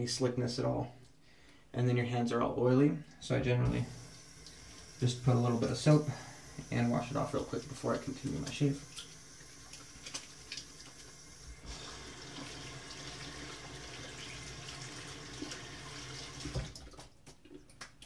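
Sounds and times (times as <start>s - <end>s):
sink tap running: 3.6s - 16.8s.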